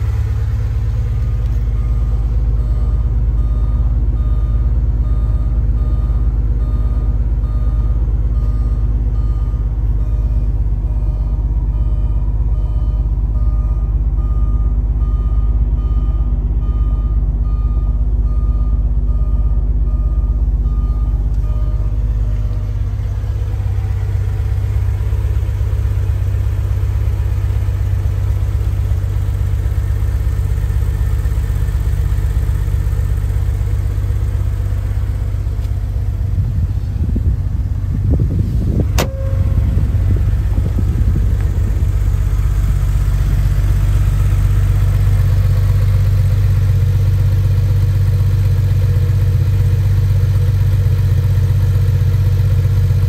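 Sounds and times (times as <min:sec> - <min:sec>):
car engine idling: 0:00.0 - 0:53.0
warning chime beeping: 0:01.7 - 0:29.0, 0:39.0 - 0:44.9.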